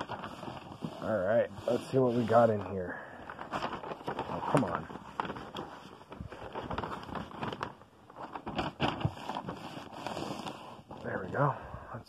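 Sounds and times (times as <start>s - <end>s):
crackles and knocks: 0.0s - 1.0s, 2.6s - 11.4s
packaging rustling and scraping: 0.0s - 11.6s.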